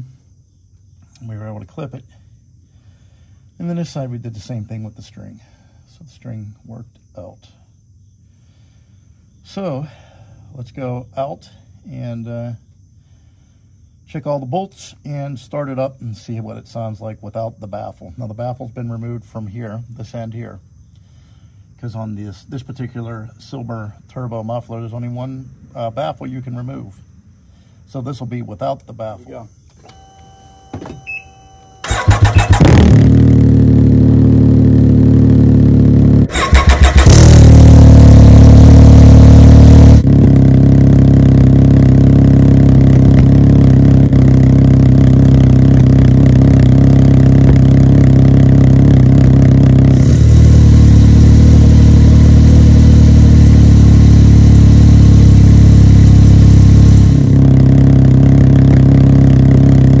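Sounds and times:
engine starter cranking: 0:31.8 - 0:33.1, 0:36.3 - 0:37.8
engine idling: 0:31.8 - 1:00.0.

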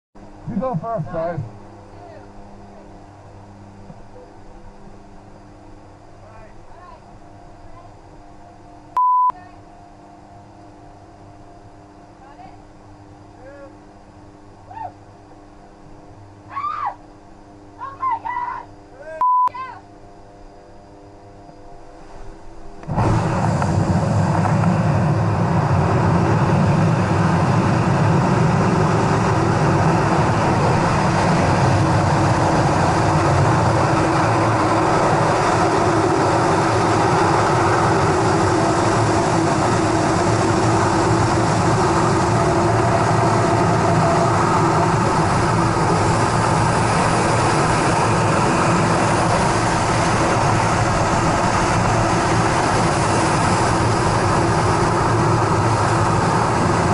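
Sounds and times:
wind rushing over microphone: 0:22.8 - 0:56.9.

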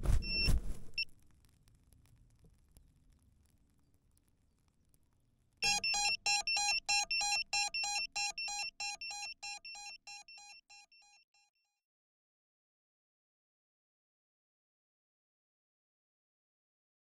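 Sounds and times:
electronic beeps: 0:00.2 - 0:01.1, 0:05.6 - 0:11.2.

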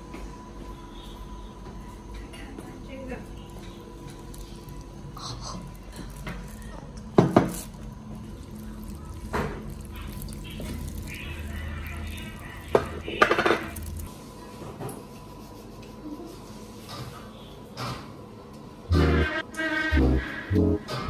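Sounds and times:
chopsticks mixing noodles: 0:03.5 - 0:14.1
plastic bag rustling: 0:07.6 - 0:14.1.

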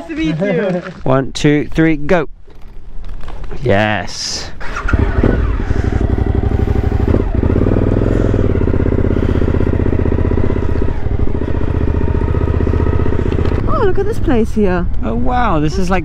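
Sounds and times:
motorcycle engine running: 0:04.7 - 0:15.2.

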